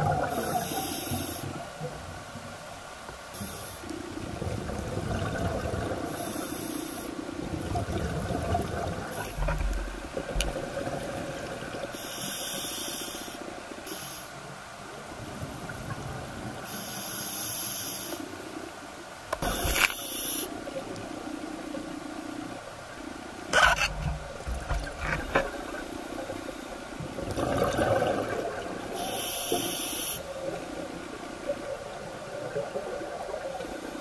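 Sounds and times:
exhaled bubbles bursting: 0.0 - 0.6, 4.4 - 6.1, 7.5 - 11.9, 27.2 - 29.0
scuba regulator hiss: 0.4 - 1.6, 6.2 - 7.1, 12.0 - 14.4, 16.7 - 18.3, 19.4 - 20.6, 29.0 - 30.2
low underwater rush: 3.9 - 12.1, 20.5 - 29.3.

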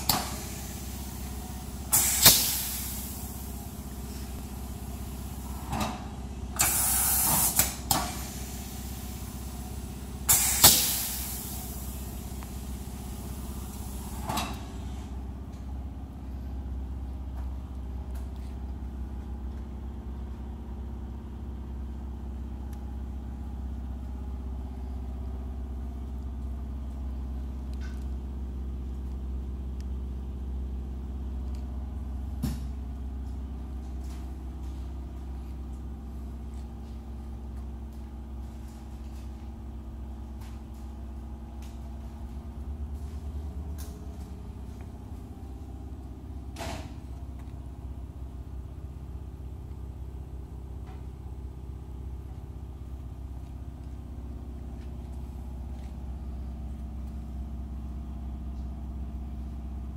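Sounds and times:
garment press hissing bursts: 0.0 - 15.1
steady low hum: 0.0 - 59.9.

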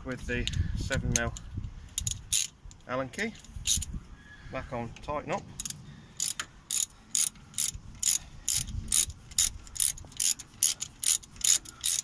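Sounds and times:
ratchet wrench clicking: 0.4 - 2.8, 3.4 - 3.9, 5.6 - 12.0.

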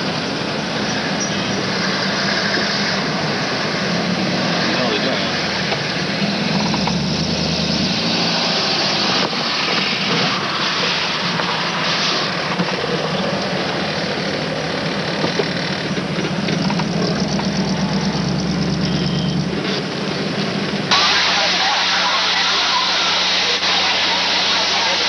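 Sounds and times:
car engine running inside car: 12.4 - 25.0.

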